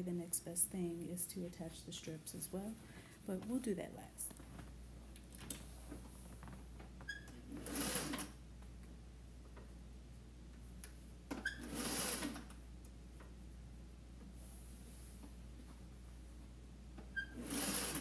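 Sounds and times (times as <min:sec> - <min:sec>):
steady low hum: 0:00.0 - 0:11.4, 0:12.4 - 0:17.2
sewing machine stitching: 0:07.5 - 0:08.3, 0:11.5 - 0:12.4, 0:17.2 - 0:18.0.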